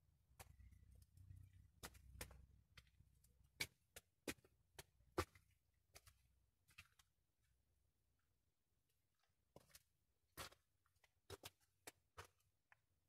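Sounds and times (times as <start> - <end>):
footsteps tapping and clicking: 0.3 - 7.1, 9.6 - 12.9.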